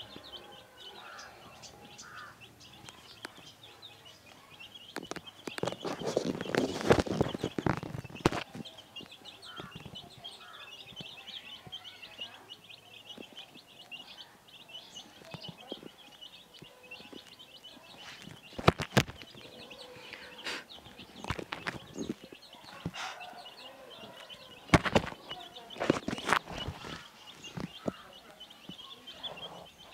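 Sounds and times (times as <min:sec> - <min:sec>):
chicks peeping: 0:00.0 - 0:29.9.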